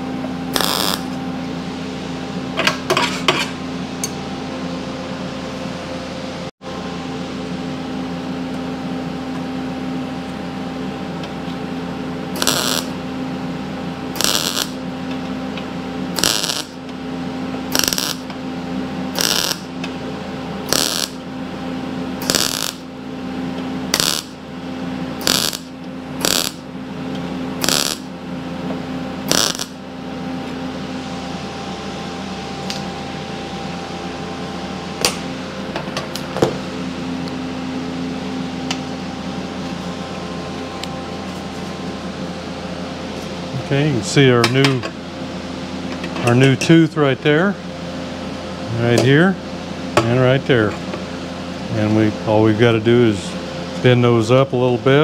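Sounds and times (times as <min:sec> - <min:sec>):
steady hum: 0:00.0 - 0:55.0
welding arc crackling: 0:00.5 - 0:01.2, 0:12.3 - 0:13.0, 0:14.1 - 0:14.8, 0:16.1 - 0:16.8, 0:17.7 - 0:18.3, 0:19.1 - 0:19.7, 0:20.6 - 0:21.2, 0:22.2 - 0:22.9, 0:23.9 - 0:24.4, 0:25.2 - 0:26.6, 0:27.6 - 0:28.1, 0:29.2 - 0:29.8.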